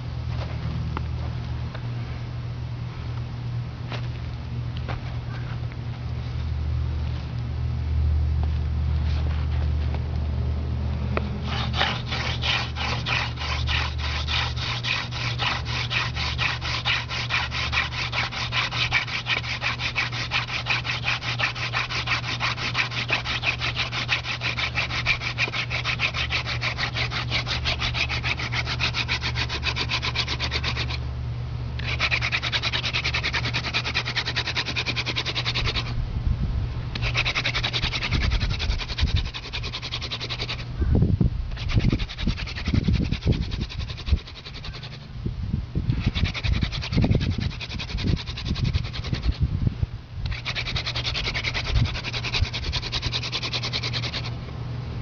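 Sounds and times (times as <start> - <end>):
wood rubbing on wood: 11.4 - 31.0, 31.8 - 36.0, 36.9 - 40.7, 41.5 - 45.1, 45.9 - 49.4, 50.3 - 54.4.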